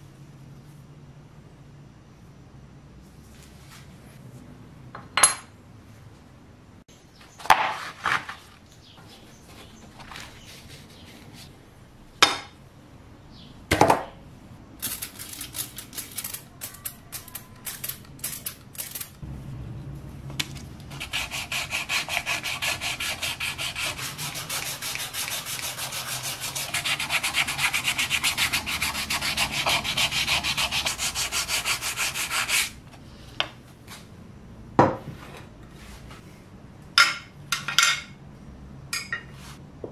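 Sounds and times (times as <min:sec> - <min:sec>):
hand sanding plastic: 0:20.8 - 0:32.8.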